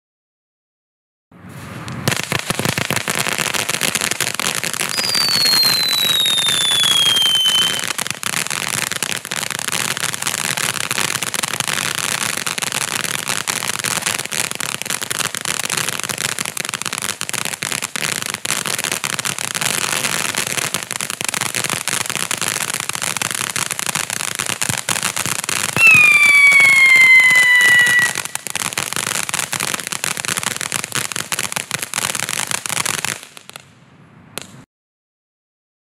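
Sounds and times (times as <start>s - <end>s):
falling firework whistle: 1.5s - 8.9s, 25.6s - 29.1s
firework fountain crackling hiss: 1.9s - 33.7s.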